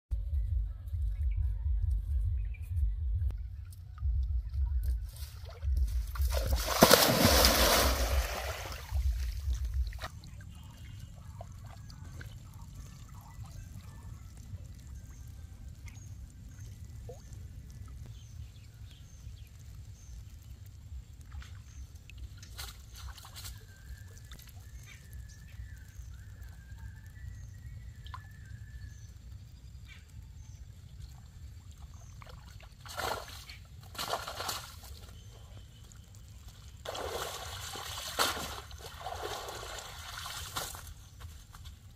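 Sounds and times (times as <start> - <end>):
water sloshing: 5.1 - 13.7, 36.8 - 41.4
net splashing into water: 5.4 - 10.3, 32.8 - 35.1, 36.9 - 41.1
water streaming off net: 6.2 - 10.1, 36.8 - 40.9.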